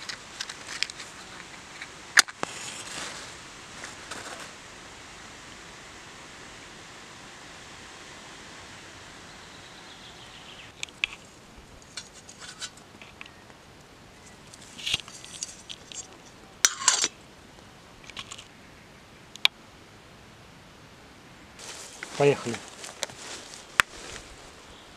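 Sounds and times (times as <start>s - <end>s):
steady hiss: 0.0s - 24.9s
metal cookware clattering: 16.6s - 17.1s.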